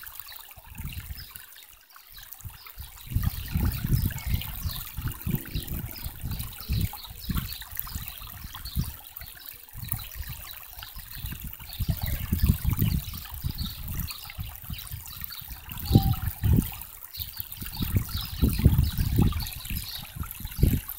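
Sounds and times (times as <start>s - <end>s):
stream trickling: 0.0s - 20.9s
low rumbling on microphone: 3.0s - 9.0s, 11.0s - 16.8s, 17.6s - 20.9s.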